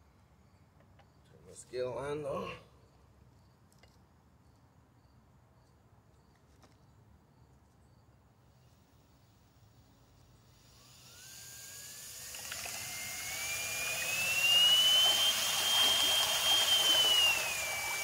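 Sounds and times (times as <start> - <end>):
electric motor whine: 10.6 - 18.0
propeller churning and splashing water: 12.3 - 18.0.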